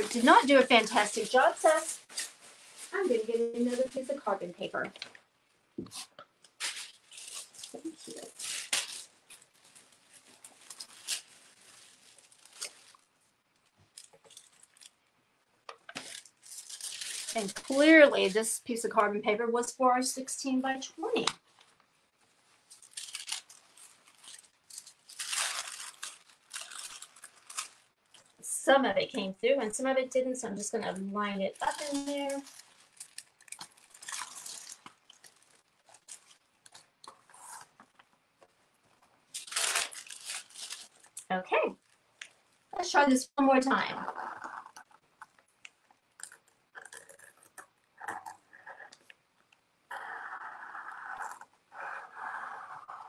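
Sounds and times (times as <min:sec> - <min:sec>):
paper rustling and crinkling: 0:06.0 - 0:15.0, 0:15.8 - 0:18.1, 0:22.5 - 0:28.3, 0:31.6 - 0:38.0, 0:39.0 - 0:41.2.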